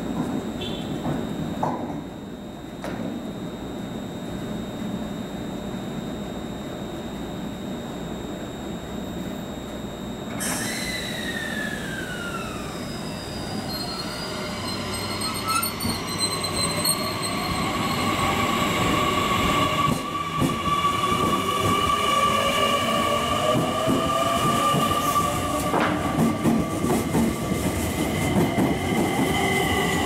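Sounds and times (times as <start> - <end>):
train motor whine: 8.1 - 30.0.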